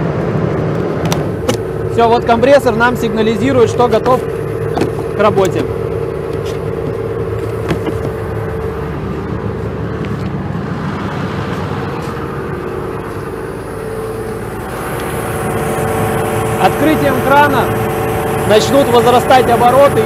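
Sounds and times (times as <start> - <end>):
diesel engine running at low revs: 0.0 - 20.0
steady higher tone: 1.2 - 20.0.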